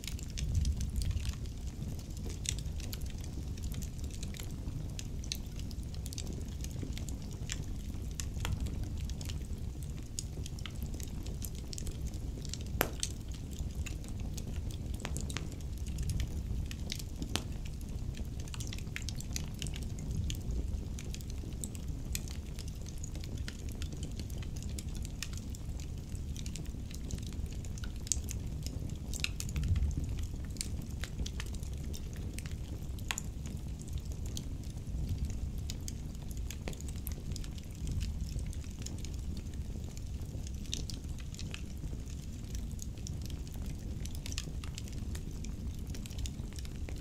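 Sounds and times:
low rumble of flames: 0.0s - 47.0s
wood fire crackling and popping: 0.0s - 47.0s.

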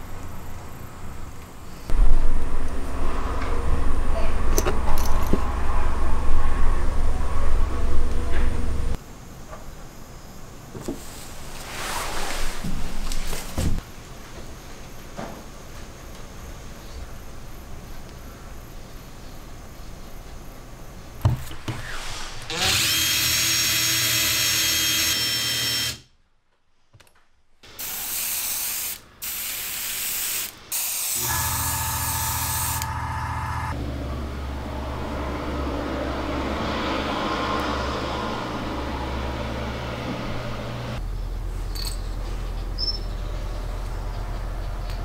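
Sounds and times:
power tool whining: 22.5s - 26.1s, 30.8s - 33.8s
small electric motor humming: 22.5s - 26.1s, 30.8s - 33.8s.

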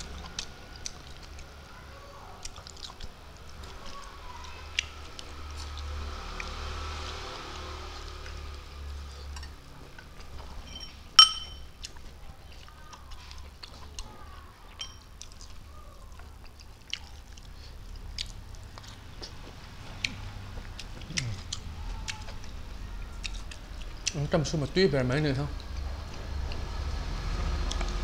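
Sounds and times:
soft chewing: 0.0s - 24.7s, 25.6s - 28.0s
utensil clinking against dish: 10.6s - 11.7s, 14.8s - 15.2s
fingers being licked: 15.2s - 24.2s.

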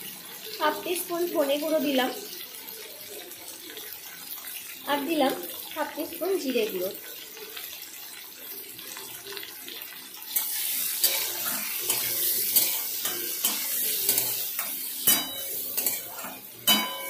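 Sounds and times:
vegetables sizzling in oil: 0.0s - 17.0s
metal spatula scraping pan: 10.3s - 17.0s.

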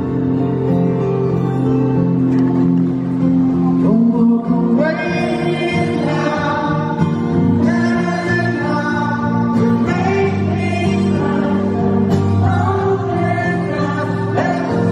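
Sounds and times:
strummed acoustic guitar: 0.0s - 14.9s
man singing into a microphone: 3.8s - 14.9s.

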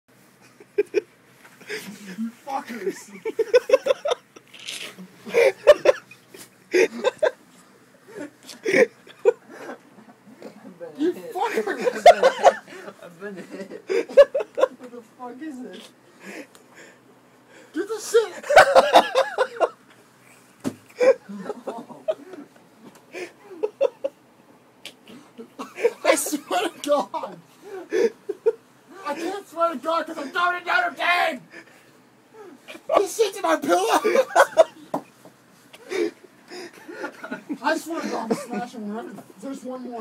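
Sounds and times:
people laughing and chuckling: 0.4s - 4.5s, 5.2s - 7.4s, 8.0s - 10.6s, 11.4s - 14.8s, 18.4s - 24.2s, 33.8s - 35.2s, 35.8s - 38.7s.

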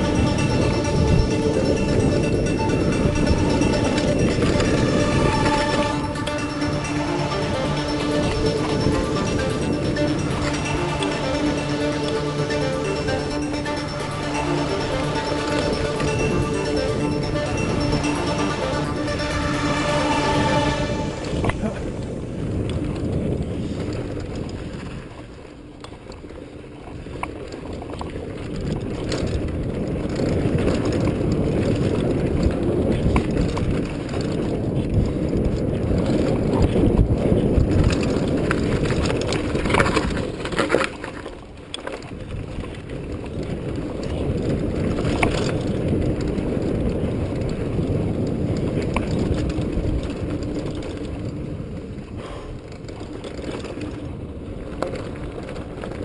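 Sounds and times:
bike rattling over bumps: 0.0s - 5.8s, 21.6s - 56.0s
wind on microphone: 0.0s - 56.0s.

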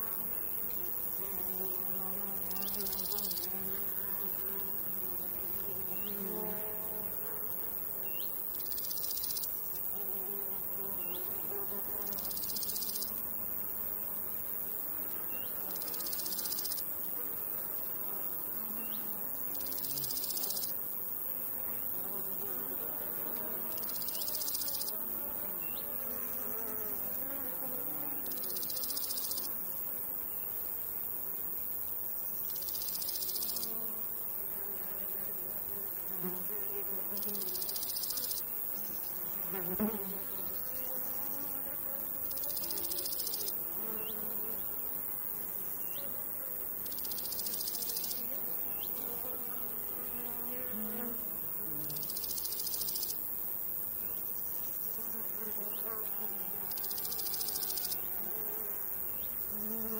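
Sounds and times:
cricket chirring: 0.0s - 59.9s
flies and bees buzzing: 0.0s - 59.9s.

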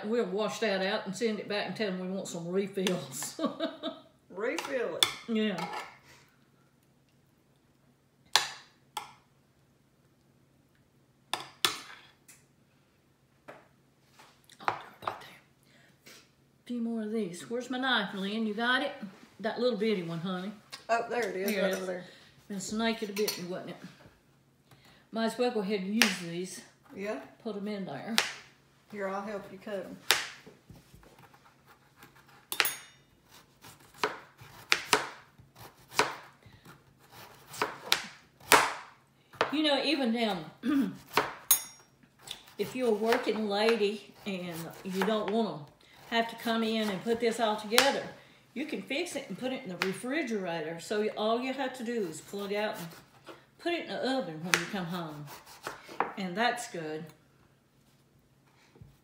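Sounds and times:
knife slicing potato: 31.1s - 39.5s, 42.2s - 45.4s, 54.4s - 56.1s.

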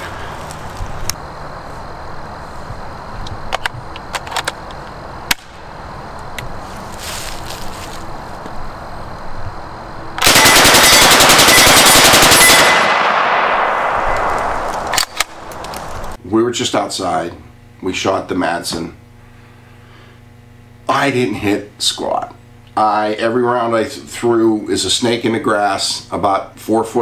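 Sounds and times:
submachine gun full-auto burst: 10.2s - 13.7s
gunshot echo: 10.2s - 16.1s.

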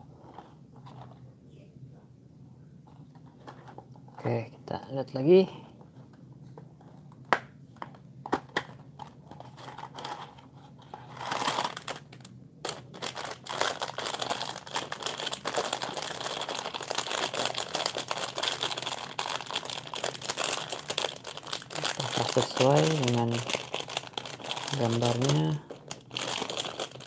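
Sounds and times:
plastic bag crinkling: 11.0s - 27.0s.

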